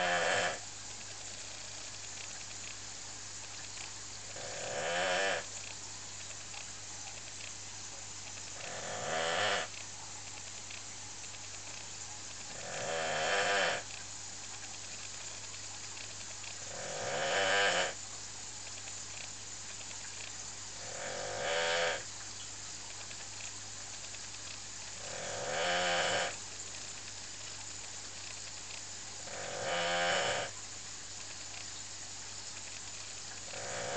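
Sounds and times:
dog snoring: 0.0 - 0.6, 4.3 - 5.5, 8.6 - 9.8, 12.5 - 13.8, 16.6 - 18.0, 20.8 - 22.0, 25.0 - 26.4, 29.2 - 30.5, 33.5 - 33.9.

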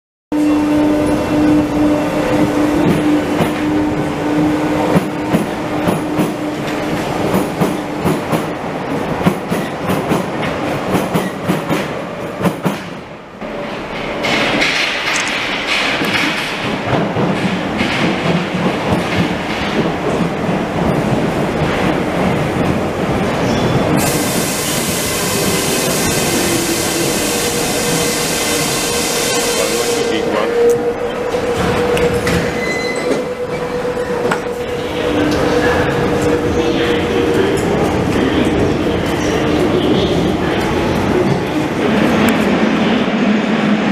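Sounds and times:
train hum: 0.4 - 43.9
train wheels clicking and clattering: 2.3 - 29.7, 30.6 - 34.6
train hissing rumble: 23.9 - 30.9.

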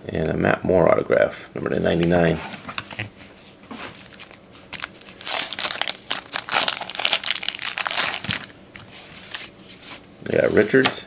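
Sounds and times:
card packaging crinkling: 4.0 - 9.5.

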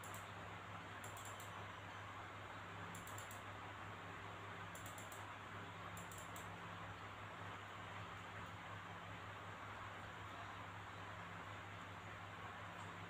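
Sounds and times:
faint high ticks: 0.0 - 0.3, 1.0 - 1.6, 2.9 - 3.5, 4.7 - 5.3, 5.9 - 6.5
low electrical hum: 0.0 - 13.0.

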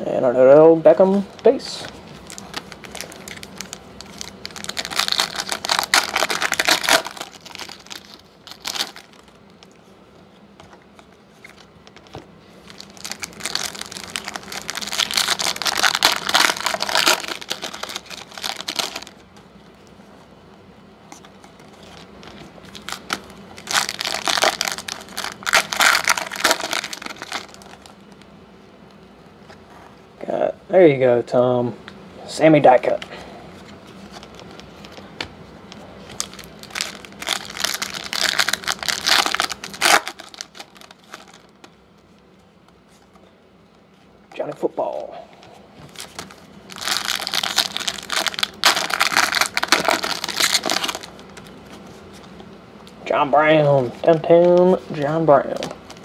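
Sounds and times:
foil wrappers tearing and crinkling: 1.5 - 9.8, 11.4 - 19.2, 21.2 - 28.2, 35.7 - 41.7, 45.8 - 52.3.

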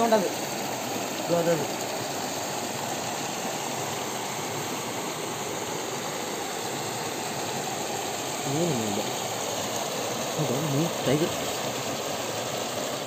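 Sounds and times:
water cascading over rocks: 0.0 - 13.0.

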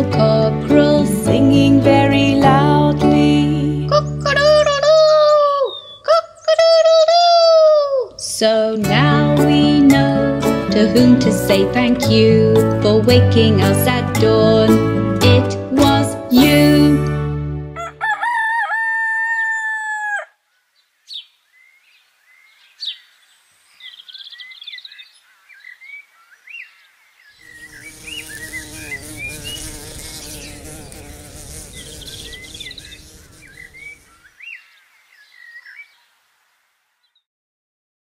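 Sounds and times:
small birds chirping: 4.0 - 7.1, 20.5 - 37.3
rooster crowing: 17.8 - 20.4
farmyard noise: 17.8 - 20.5.

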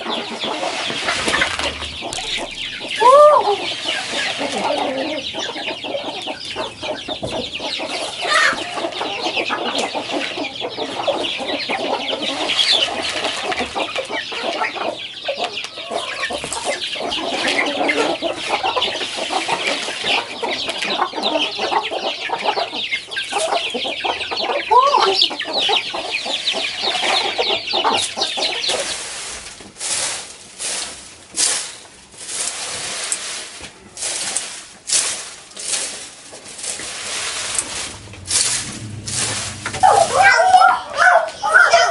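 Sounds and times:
broom sweeping dirt path: 0.0 - 5.9, 11.8 - 14.1, 16.4 - 20.9, 26.2 - 41.9
chicks cheeping: 0.0 - 29.3, 37.4 - 41.9
chickens clucking: 0.0 - 41.9.

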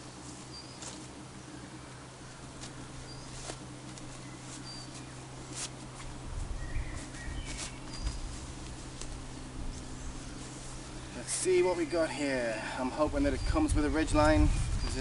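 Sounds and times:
stuff sack rustling: 2.6 - 10.9
bird chirps: 3.0 - 3.4, 4.2 - 5.2, 6.6 - 8.2.

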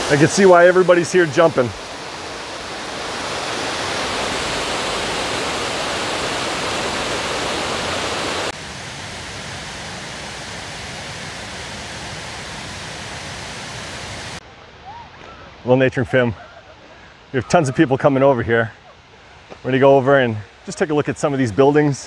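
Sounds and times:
water rushing down stone steps: 0.0 - 8.5.

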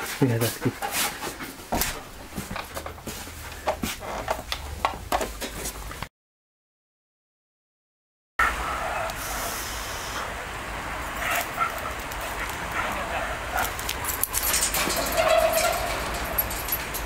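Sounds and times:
footsteps on steel grating: 0.0 - 6.0
dog whining: 14.8 - 16.4.

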